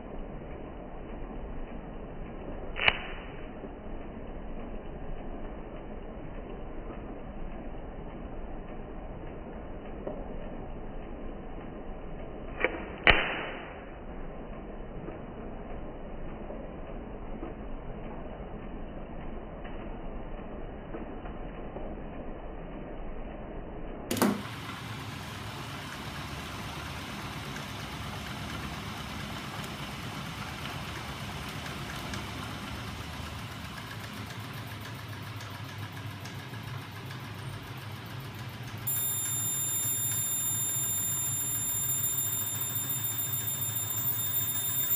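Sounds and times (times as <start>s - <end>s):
sharp snap: 2.7s - 3.4s, 12.6s - 13.8s
high whines: 38.8s - 44.9s.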